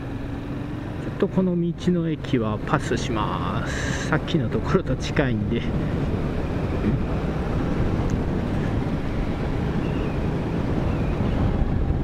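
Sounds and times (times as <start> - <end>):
motorcycle engine: 0.0 - 4.0
road noise: 0.0 - 12.0
wind rushing over microphone: 2.2 - 12.0.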